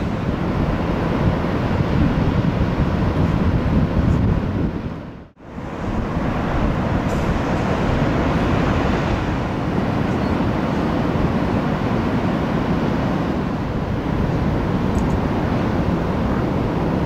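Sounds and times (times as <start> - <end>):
ocean surf breaking: 0.0 - 17.0.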